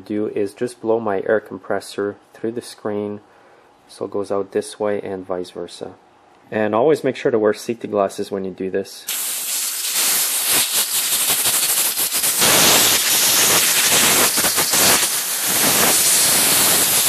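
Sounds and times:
compressed air hissing: 9.1s - 17.0s.

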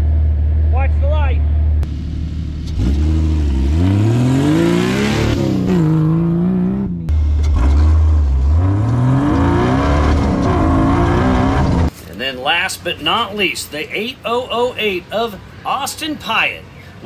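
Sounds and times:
race vehicle engine accelerating: 1.4s - 11.9s.

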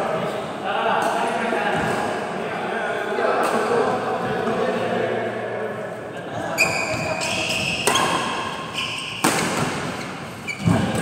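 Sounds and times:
rackets striking shuttlecock: 9.2s - 10.0s.

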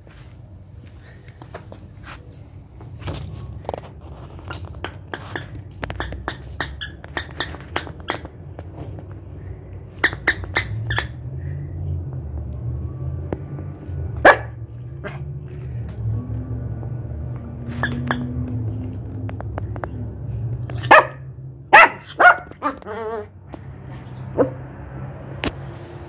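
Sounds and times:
squeaky toy squeaks: 4.7s - 8.4s, 9.9s - 11.3s, 17.7s - 18.4s, 20.6s - 21.1s, 21.8s - 23.3s.

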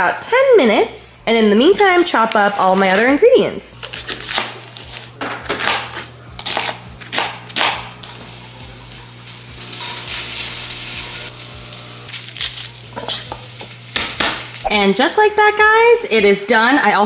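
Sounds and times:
knife chopping on plastic board: 5.2s - 7.9s
food sizzling in a pot: 7.9s - 14.8s.

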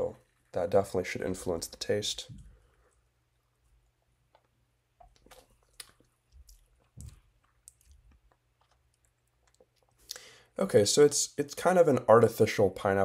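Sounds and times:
man sipping and swallowing: 2.3s - 10.4s.

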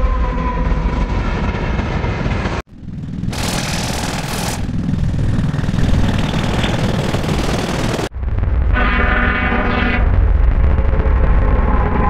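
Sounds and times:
train rattling rumble: 0.3s - 12.0s.

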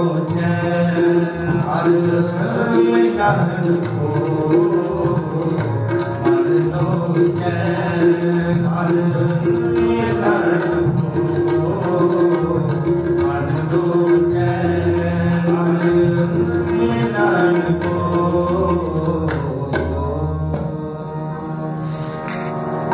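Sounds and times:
tabla drums: 0.0s - 22.9s.

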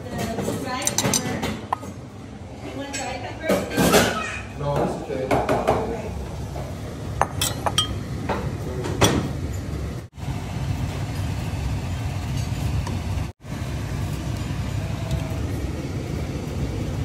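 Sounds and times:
dishes and utensils clinking: 0.0s - 2.0s, 2.8s - 5.9s, 6.5s - 9.8s.

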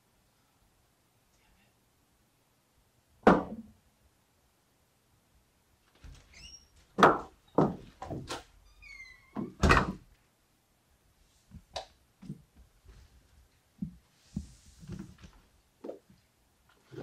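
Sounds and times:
short squeaks: 6.3s - 6.8s
soft knocks: 7.0s - 8.4s
door thumping shut: 9.4s - 10.0s.

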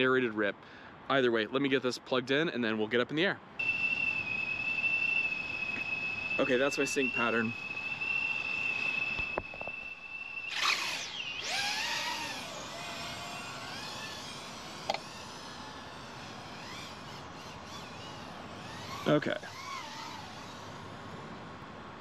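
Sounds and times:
steady high beep: 3.6s - 11.4s
quadcopter motors whining: 3.6s - 21.6s.

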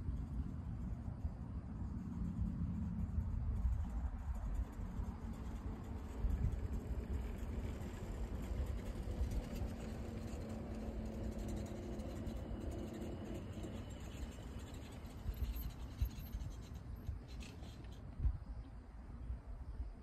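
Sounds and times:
wind on microphone: 0.0s - 19.4s
golf cart motor humming: 4.4s - 16.4s.

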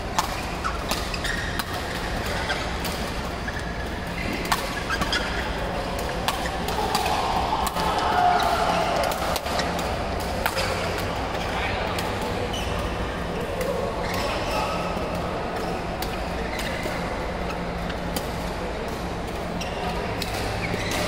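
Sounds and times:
rackets striking shuttlecocks: 0.1s - 12.8s.

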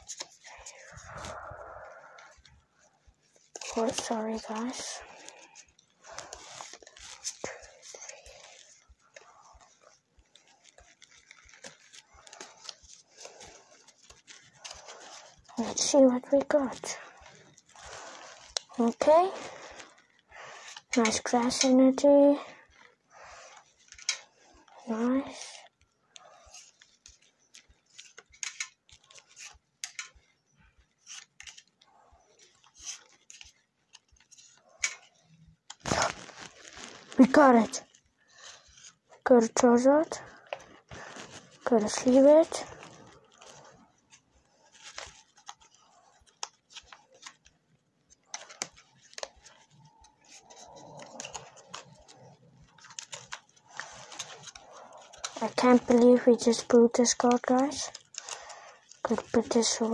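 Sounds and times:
trading cards sliding and snapping: 3.4s - 20.0s, 26.1s - 30.2s, 31.0s - 35.1s, 48.2s - 59.9s.

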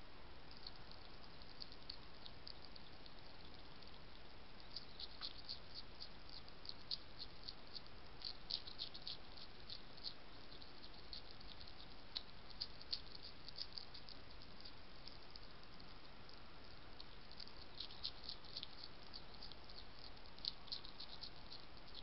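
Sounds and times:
microphone hiss: 0.0s - 22.0s
hedgehog crunching food: 0.4s - 22.0s.

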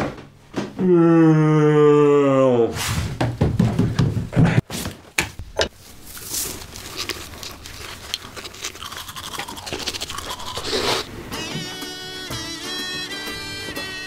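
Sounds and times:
toothbrush scrubbing teeth: 6.0s - 11.1s.

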